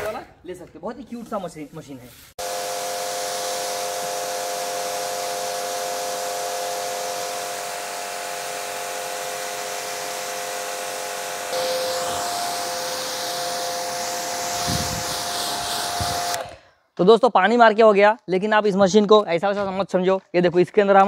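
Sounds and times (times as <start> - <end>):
water spray hissing: 2.1 - 16.5
pressure washer motor whine: 2.4 - 16.6.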